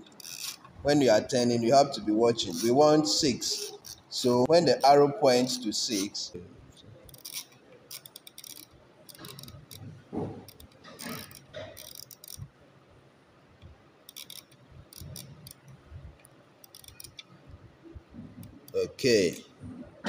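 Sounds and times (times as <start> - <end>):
rotary dial clicking and ticking: 0.0 - 0.8, 2.4 - 2.8, 3.5 - 4.1, 7.0 - 12.6, 13.6 - 19.4.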